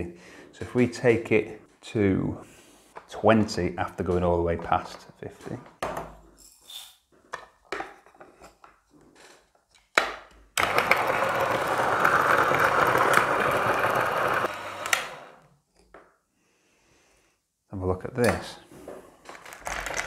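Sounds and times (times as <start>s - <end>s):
coffee grinder grinding beans: 10.6s - 15.4s, 19.4s - 20.0s.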